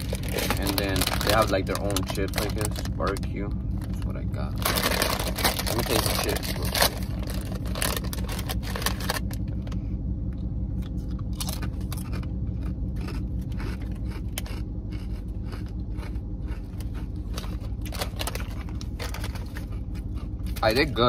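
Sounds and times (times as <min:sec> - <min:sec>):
chip bag crinkling: 0:00.0 - 0:02.9, 0:04.6 - 0:09.4, 0:16.8 - 0:19.8
potato chips crunching: 0:00.0 - 0:03.2, 0:04.6 - 0:09.4, 0:10.8 - 0:20.9
car idling hum: 0:00.0 - 0:21.0.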